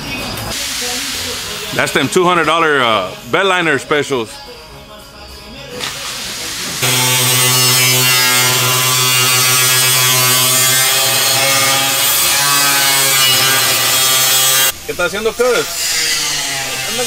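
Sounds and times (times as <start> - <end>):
power tool whirring: 5.8 - 14.8.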